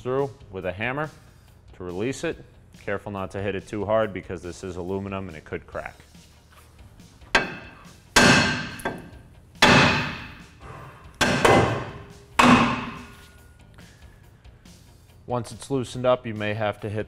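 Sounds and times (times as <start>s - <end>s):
hammer striking metal: 7.3s - 13.3s.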